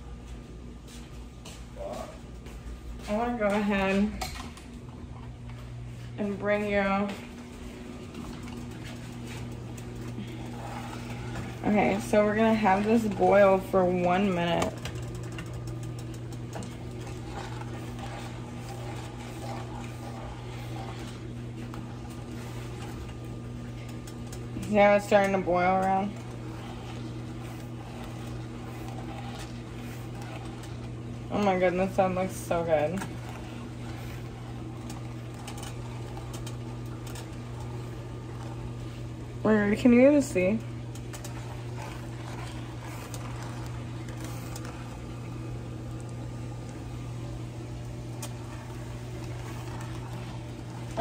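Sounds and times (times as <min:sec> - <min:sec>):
low mechanical hum: 0:00.0 - 0:51.0
sugar glaze bubbling in a pan: 0:08.6 - 0:51.0
spoon scraping skillet: 0:16.5 - 0:38.7.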